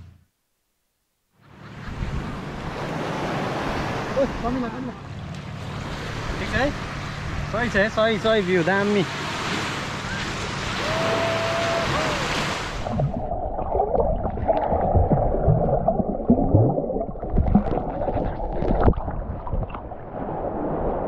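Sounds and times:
water lapping at shoreline: 0:01.5 - 0:13.2
muffled underwater rumbling: 0:12.7 - 0:21.0
underwater gurgling and bubbling: 0:12.7 - 0:21.0.

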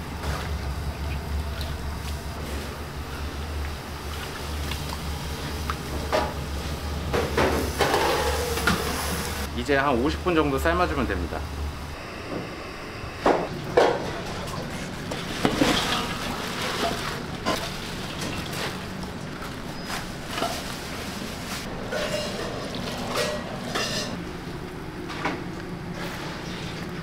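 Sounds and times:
steady low hum: 0:00.0 - 0:27.0
metal pots and utensils clinking: 0:21.9 - 0:24.2.

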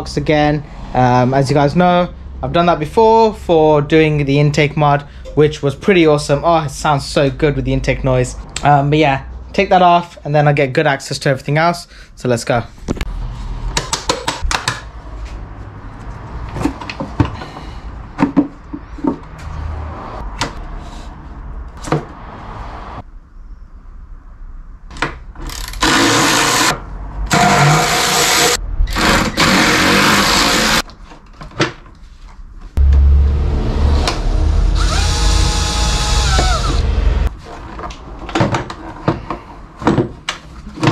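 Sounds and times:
hand tools and plastic parts knocking: 0:13.7 - 0:15.0, 0:16.4 - 0:19.5, 0:37.6 - 0:40.9
cordless drill running: 0:25.8 - 0:26.7, 0:34.8 - 0:36.8.

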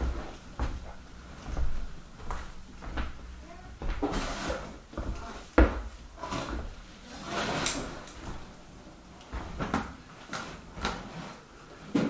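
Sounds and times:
hand truck scraping on plywood floor: 0:03.9 - 0:08.6, 0:10.2 - 0:12.0.

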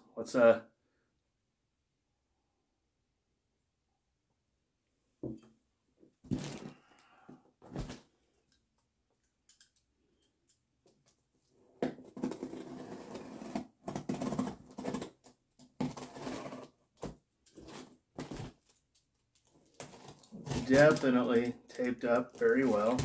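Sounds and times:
box dragged across table: 0:12.3 - 0:15.0, 0:15.8 - 0:16.8.

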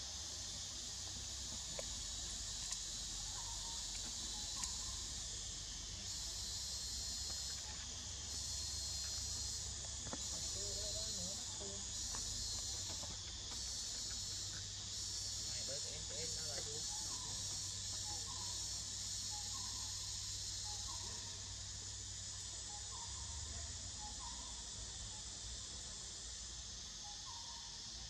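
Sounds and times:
high-pitched insect chorus: 0:00.0 - 0:28.0
faint ticks: 0:01.4 - 0:05.0.

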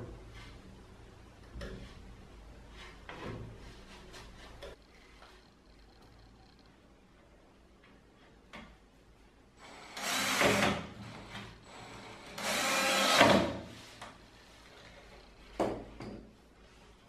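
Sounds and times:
cordless drill driving screw into wood: 0:09.8 - 0:10.9, 0:12.3 - 0:13.6.

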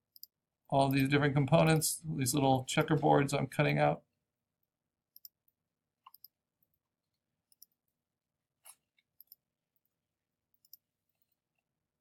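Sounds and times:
computer mouse clicks: 0:05.2 - 0:06.8, 0:07.5 - 0:07.8, 0:08.6 - 0:09.9, 0:10.5 - 0:11.4.

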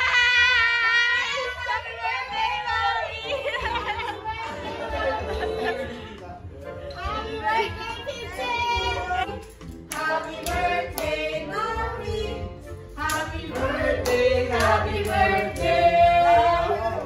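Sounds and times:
group singing: 0:01.3 - 0:06.2, 0:07.0 - 0:17.0
hand claps: 0:09.3 - 0:11.2, 0:13.0 - 0:15.7.

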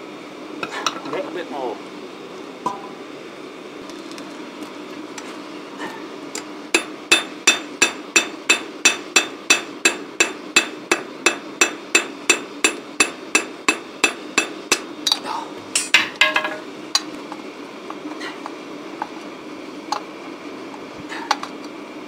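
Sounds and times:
hammer ringing on hot steel: 0:06.7 - 0:14.9.

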